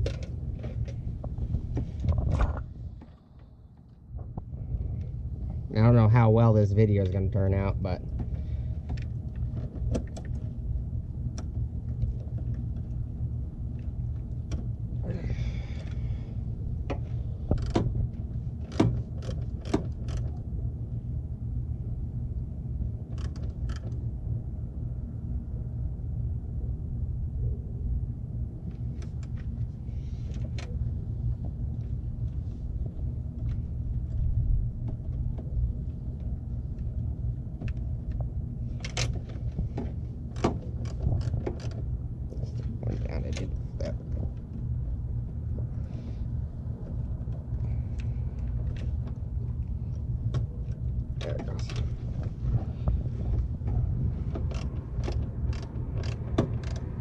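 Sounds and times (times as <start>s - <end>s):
ratchet wrench clicking: 54.5s - 56.9s.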